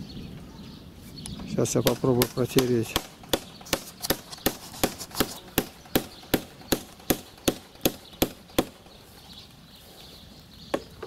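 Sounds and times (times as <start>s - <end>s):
rapid sharp knocks: 1.8s - 8.9s.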